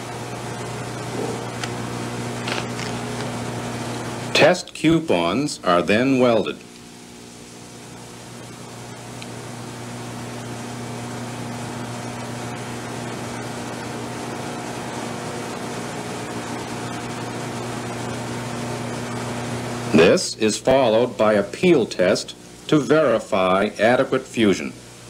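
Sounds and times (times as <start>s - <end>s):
low electrical hum: 0.0s - 25.0s
even hiss: 19.8s - 25.0s.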